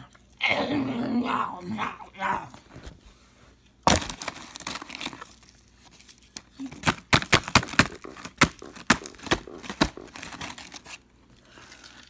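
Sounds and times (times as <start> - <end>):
cardboard box crinkling: 3.8 - 11.1.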